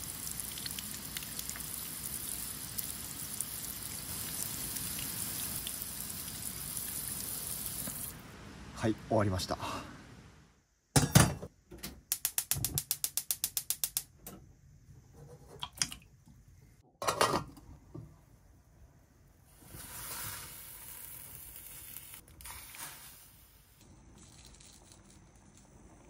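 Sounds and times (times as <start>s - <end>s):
steady gas hiss: 0.0s - 10.6s, 19.4s - 24.5s.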